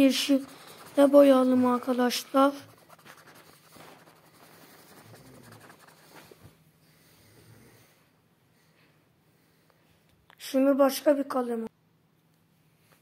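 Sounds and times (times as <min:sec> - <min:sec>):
pen scratching on paper: 0:00.0 - 0:06.4.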